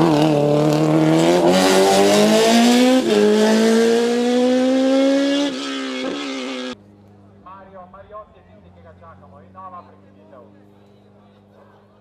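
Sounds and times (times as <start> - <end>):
race car engine revving: 0.0 - 6.8.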